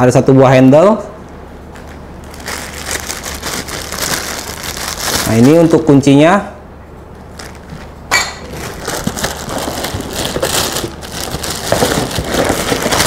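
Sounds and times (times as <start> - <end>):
plastic wrapping crinkling: 1.7 - 6.1, 7.1 - 13.0.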